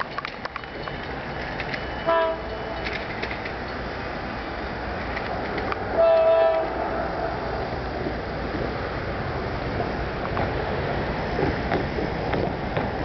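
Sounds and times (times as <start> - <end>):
steady background noise: 0.0 - 13.0
locomotive air horn blasts: 2.0 - 2.9, 5.9 - 7.0.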